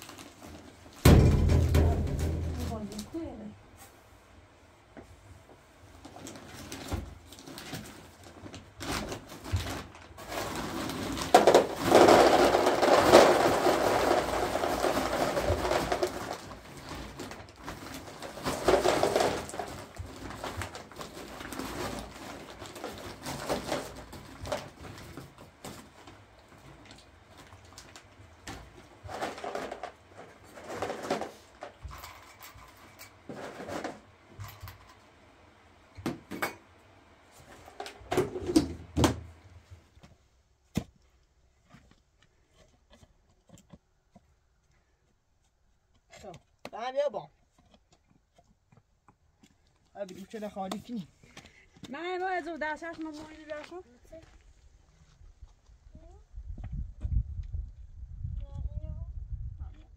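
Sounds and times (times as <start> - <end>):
plastic bag rustling: 0.0 - 3.4, 5.9 - 34.1.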